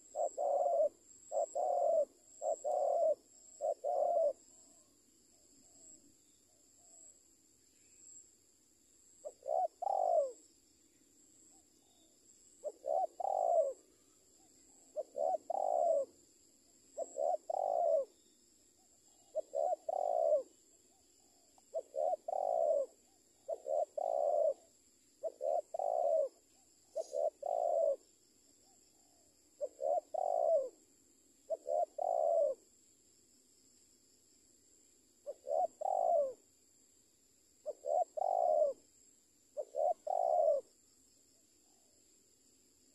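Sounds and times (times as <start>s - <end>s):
dove cooing: 0.0s - 4.9s, 9.2s - 10.4s, 11.5s - 16.2s, 16.9s - 18.2s, 18.8s - 30.8s, 31.5s - 32.7s, 35.2s - 36.4s, 37.6s - 38.9s, 39.6s - 40.8s.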